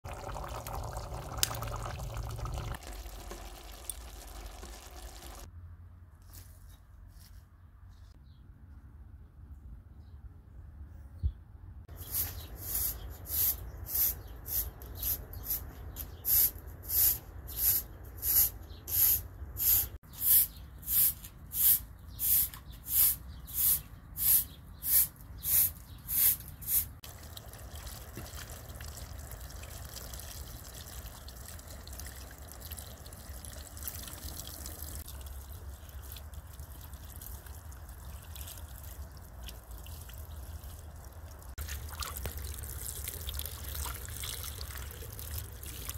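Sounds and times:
broom sweeping concrete floor: 0:12.0 - 0:27.0.

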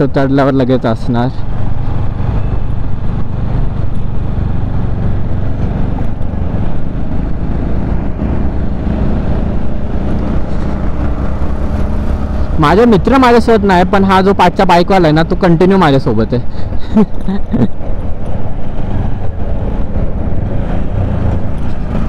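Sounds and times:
wind and road noise: 0:00.0 - 0:22.0
motorcycle engine cruising: 0:00.9 - 0:22.0.

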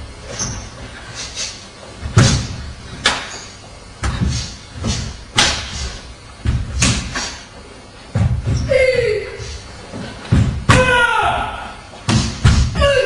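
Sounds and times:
cloth snapping on strikes: 0:05.4 - 0:05.7.

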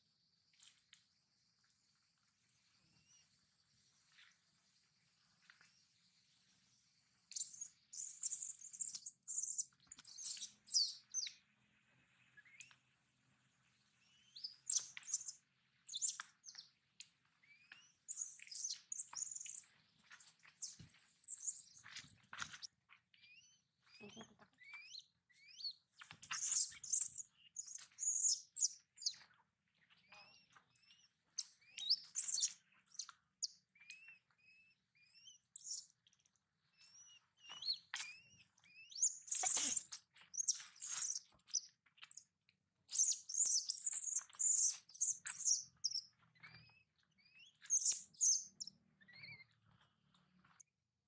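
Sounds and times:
baby monkey squeaking: 0:07.4 - 0:11.3, 0:23.3 - 0:25.7, 0:26.3 - 0:29.1, 0:31.7 - 0:33.1, 0:33.9 - 0:35.9, 0:36.9 - 0:42.2, 0:42.9 - 0:49.5.

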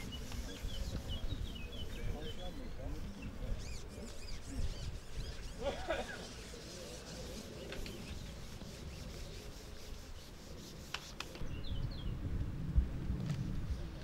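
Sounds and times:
fishing pole rubbing: 0:03.4 - 0:11.4.

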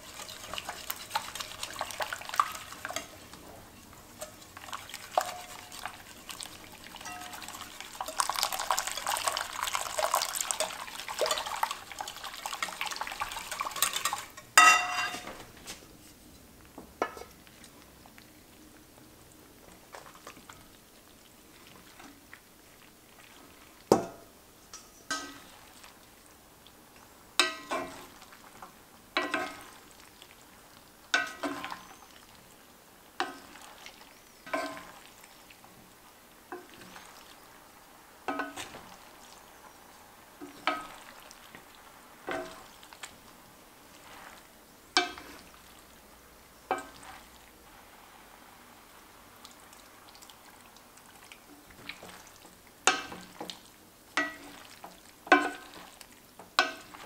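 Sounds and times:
whisk beating sauce in glass bowl: 0:00.0 - 0:03.4, 0:04.2 - 0:14.4
wooden spoon knocking on pan: 0:13.8 - 0:15.3, 0:52.8 - 0:53.6, 0:55.3 - 0:55.8, 0:56.5 - 0:56.9.

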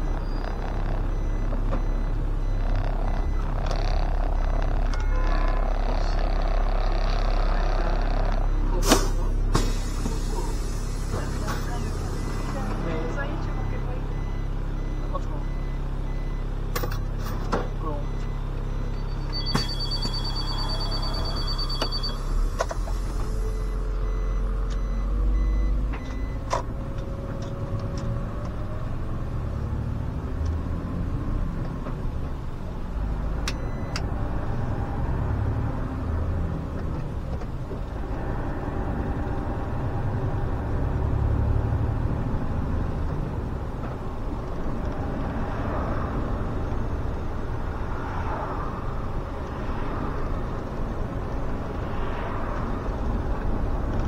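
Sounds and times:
rapid electronic beeping: 0:00.0 - 0:08.8, 0:18.0 - 0:22.3
bus diesel engine: 0:00.0 - 0:54.0.

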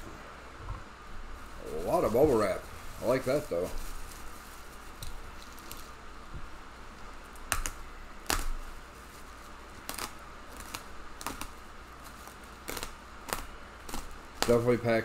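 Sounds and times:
room fan hiss: 0:00.0 - 0:15.0
bubble wrap crinkling: 0:01.2 - 0:15.0
sharp crackles: 0:07.0 - 0:14.8.

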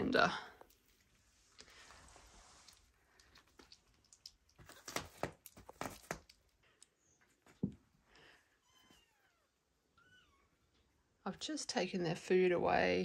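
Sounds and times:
kittens clicking and tapping: 0:03.1 - 0:07.8.

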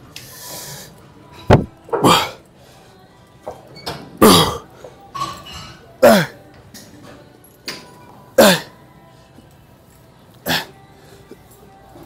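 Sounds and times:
man grunting with effort: 0:01.9 - 0:02.4.

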